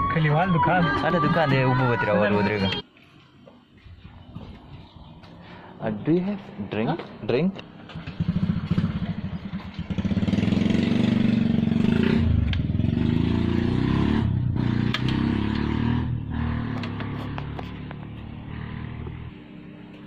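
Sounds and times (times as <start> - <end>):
vehicle engine running: 7.0 - 20.0.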